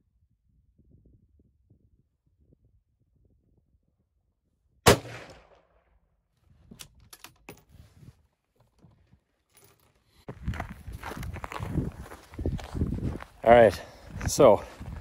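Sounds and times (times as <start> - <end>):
rifle shot: 4.8 - 5.8.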